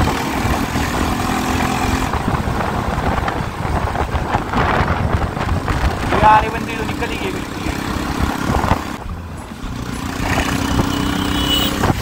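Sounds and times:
wind rumble on microphone: 0:00.0 - 0:06.6, 0:07.8 - 0:09.1, 0:11.6 - 0:12.0
motorcycle engine running: 0:00.0 - 0:12.0.

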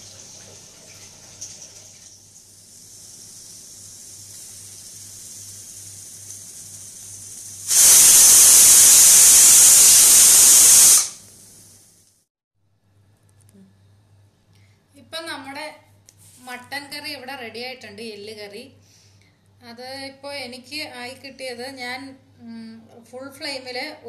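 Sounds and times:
steam hissing: 0:02.4 - 0:12.0
pressure cooker whistling: 0:07.3 - 0:11.2.

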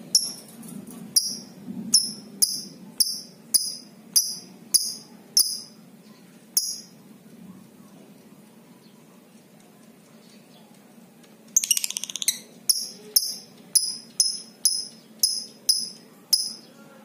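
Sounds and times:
shrill bird chirps: 0:01.2 - 0:07.0, 0:11.6 - 0:16.8.

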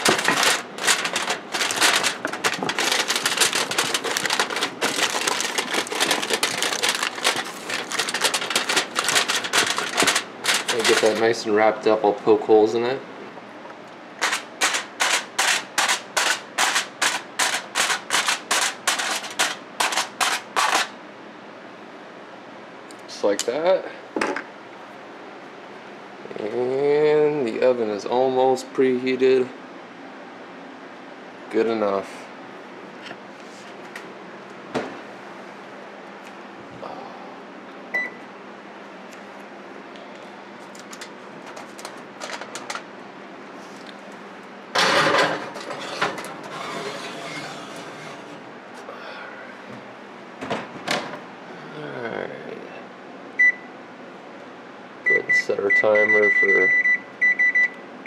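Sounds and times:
foil crackling as it is poked: 0:00.0 - 0:11.4, 0:14.2 - 0:20.9
oven electronic beep: 0:37.9 - 0:38.2, 0:53.4 - 0:53.7, 0:55.0 - 0:57.8.

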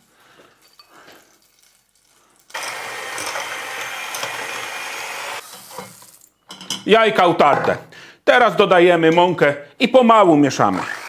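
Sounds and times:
electric mixer beating: 0:02.5 - 0:05.4, 0:10.7 - 0:11.0.

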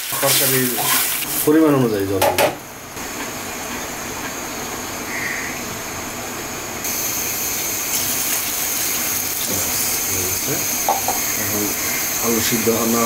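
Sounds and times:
water poured into hot pan: 0:00.0 - 0:01.5, 0:06.9 - 0:13.0
curry sizzling in a pan: 0:00.0 - 0:02.1, 0:06.8 - 0:13.0.

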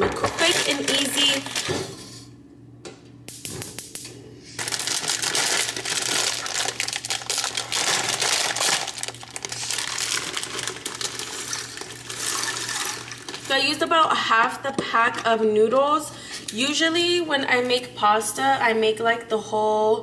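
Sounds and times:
plastic bag crinkling: 0:00.2 - 0:01.8, 0:04.6 - 0:13.9
dry pasta rattling: 0:00.4 - 0:01.7, 0:04.6 - 0:13.9.

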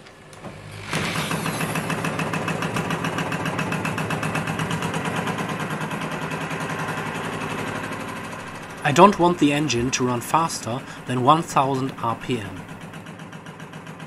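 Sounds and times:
engine mechanical clatter: 0:00.0 - 0:14.0
steady hum: 0:08.3 - 0:13.0.

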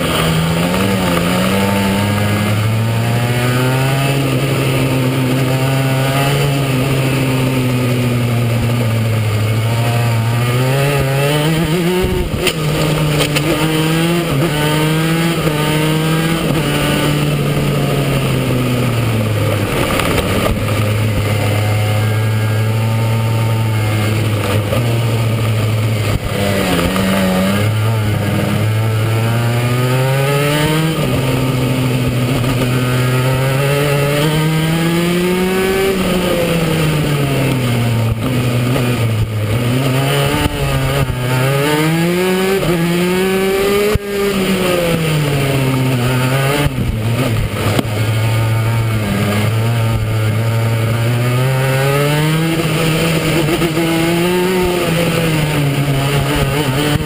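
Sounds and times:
go-kart engine accelerating: 0:00.0 - 0:57.0.

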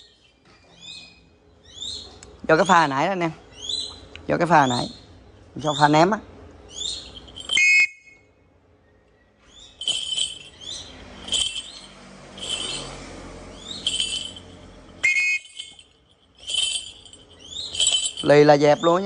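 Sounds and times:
hawk calling: 0:15.0 - 0:15.6.

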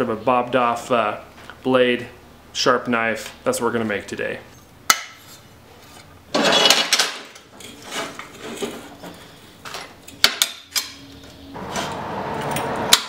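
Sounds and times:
scraping metal clatter: 0:05.2 - 0:09.8.

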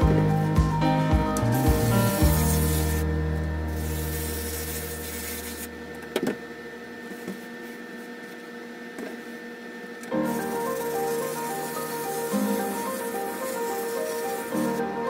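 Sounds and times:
background music: 0:00.0 - 0:05.5.

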